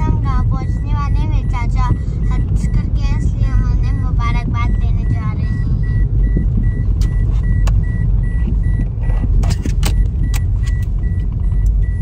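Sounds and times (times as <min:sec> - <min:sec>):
car road and engine rumble: 0:00.0 - 0:12.0
short repeating beep: 0:00.3 - 0:12.0
sharp clicks and rattles: 0:06.0 - 0:12.0.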